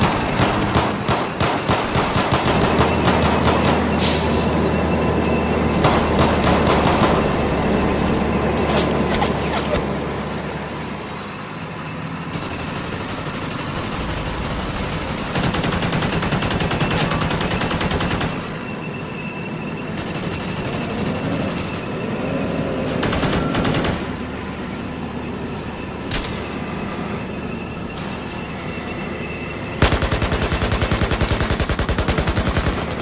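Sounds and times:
automatic gunfire: 29.8s - 33.0s.

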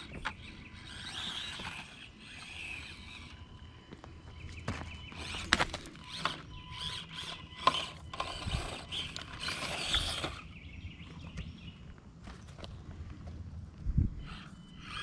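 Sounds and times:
small electric motor and gears: 0.0s - 3.8s, 4.9s - 10.7s, 14.1s - 15.0s
tyres crunching on gravel: 0.0s - 15.0s.

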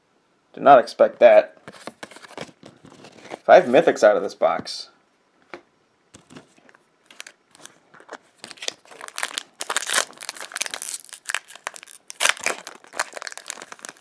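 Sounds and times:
foil wrapper crinkling and tearing: 7.1s - 14.0s.

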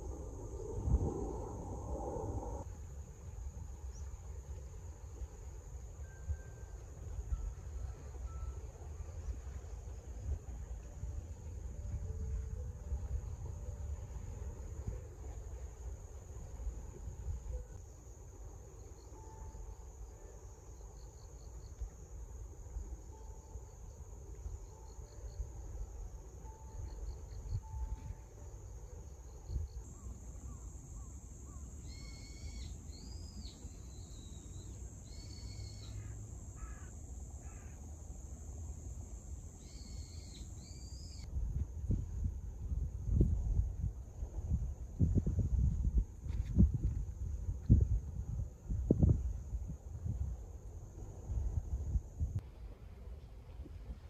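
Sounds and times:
wind rumble on microphone: 0.0s - 18.2s, 24.3s - 35.6s, 40.9s - 54.0s
high-pitched insect drone: 18.0s - 41.3s.

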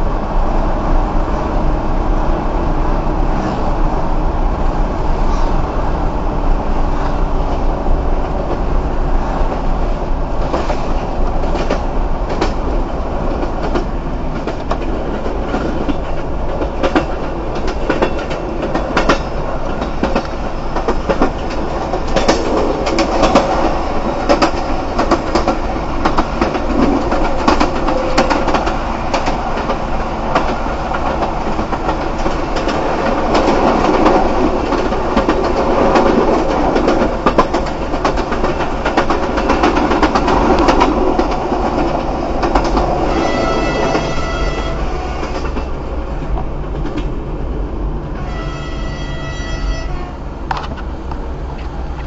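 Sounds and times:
diesel railcar rumble: 0.0s - 52.0s
wheels clicking on track: 9.3s - 44.5s.

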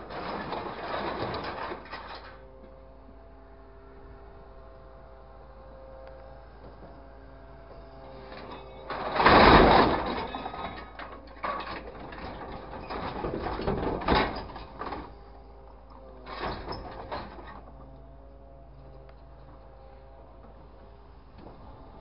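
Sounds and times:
scrap metal clattering and scraping: 0.0s - 2.5s, 8.1s - 15.2s, 16.2s - 17.7s
faint steady hum: 0.0s - 22.0s.

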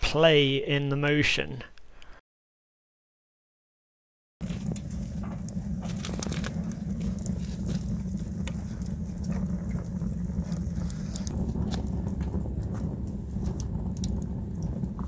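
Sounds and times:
low fire rumble: 4.4s - 15.0s
wood fire crackling and popping: 4.4s - 15.0s.

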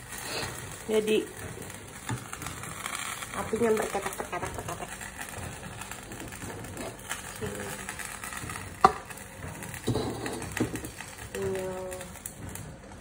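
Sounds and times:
wok simmering with bubbling hiss: 0.0s - 13.0s.

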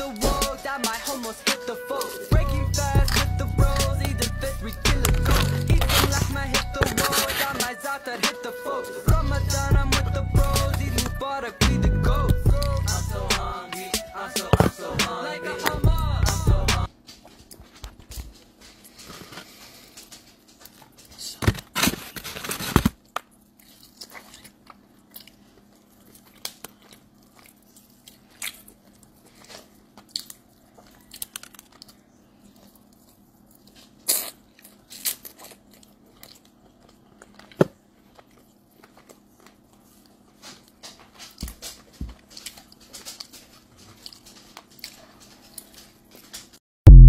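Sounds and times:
mouth sounds: 0.0s - 16.9s
crunching of fried chicken: 16.1s - 46.6s.

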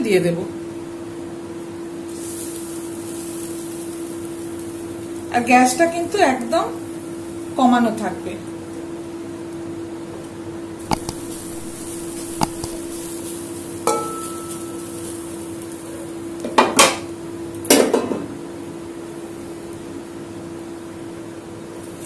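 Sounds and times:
steady low hum: 10.8s - 14.2s
utensils clinking against a pan: 11.2s - 15.4s.

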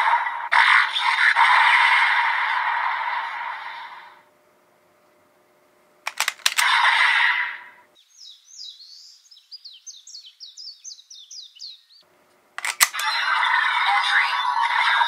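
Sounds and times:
sharp clicks: 6.1s - 6.8s, 12.3s - 13.2s
bird chirping: 8.0s - 12.1s.

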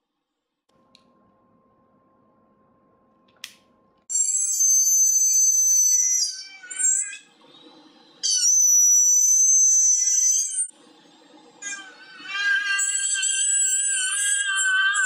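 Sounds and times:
dental drill whine: 4.1s - 15.0s.

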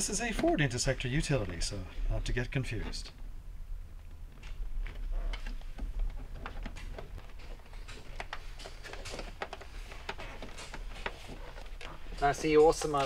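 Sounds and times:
steady low hum: 0.0s - 13.0s
cable clicking and rustling: 4.0s - 13.0s.

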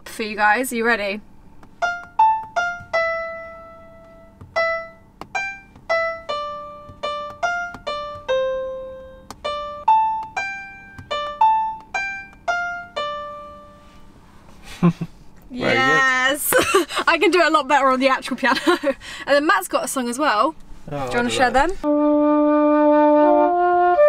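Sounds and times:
piano keyboard melody: 1.8s - 14.0s.

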